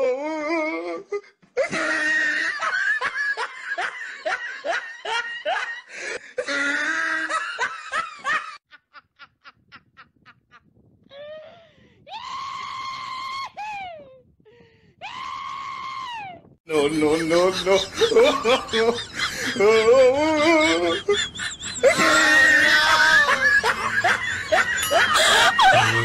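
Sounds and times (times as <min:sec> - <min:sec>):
group of people laughing: 0:01.6 - 0:10.7, 0:16.8 - 0:26.0.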